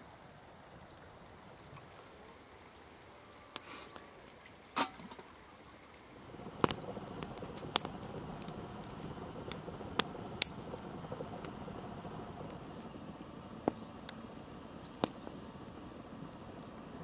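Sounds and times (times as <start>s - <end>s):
fire hiss: 3.6s - 4.0s, 6.2s - 17.0s
wood fire crackling and popping: 6.2s - 17.0s.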